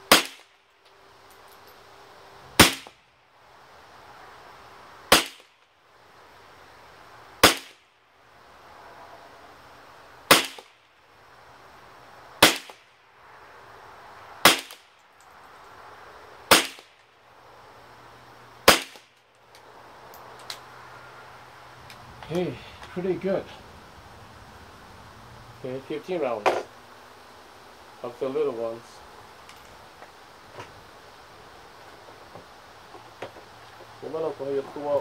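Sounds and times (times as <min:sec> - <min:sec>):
rifle shots: 0:00.1 - 0:00.5, 0:02.6 - 0:02.9, 0:05.1 - 0:05.5, 0:07.4 - 0:07.8, 0:10.3 - 0:10.7, 0:12.4 - 0:12.8, 0:14.4 - 0:14.8, 0:16.5 - 0:16.9, 0:18.6 - 0:19.0.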